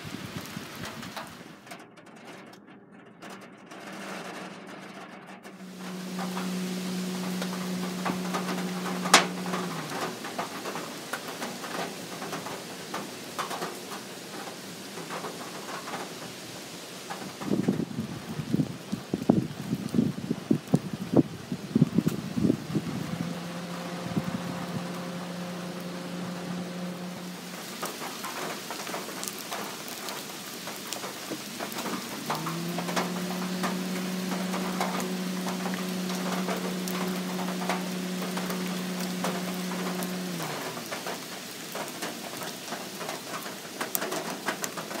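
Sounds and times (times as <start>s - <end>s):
steady rain falling: 0.0s - 45.0s
low steady hum: 5.6s - 12.3s, 21.3s - 30.1s, 31.6s - 41.2s
sharp drip ticks: 21.9s - 45.0s.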